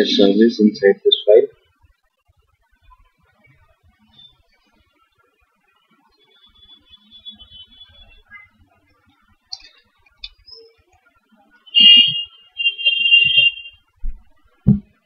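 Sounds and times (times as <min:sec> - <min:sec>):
high-pitched tones: 0:11.6 - 0:13.9
low thump: 0:14.0 - 0:14.9.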